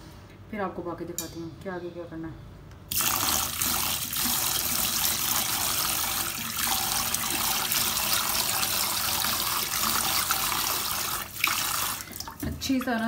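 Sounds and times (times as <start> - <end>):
tap water running into a bowl: 2.9 - 13.0.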